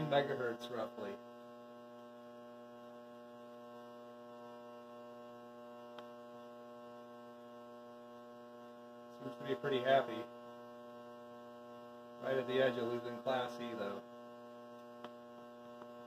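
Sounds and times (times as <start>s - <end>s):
tesla coil arc humming: 0.0s - 16.0s.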